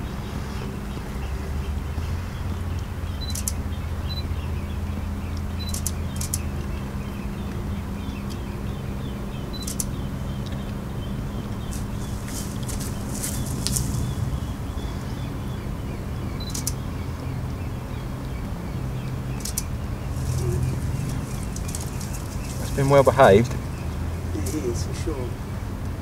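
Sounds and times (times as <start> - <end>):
steady low hum: 0.0 - 26.0
camera shutter clicks: 3.2 - 3.6, 5.6 - 6.4, 9.6 - 9.9, 16.4 - 16.8, 19.4 - 19.7
camera focus beep: 3.2 - 4.3, 5.6 - 6.4, 9.5 - 10.0, 16.4 - 16.8, 19.4 - 19.7.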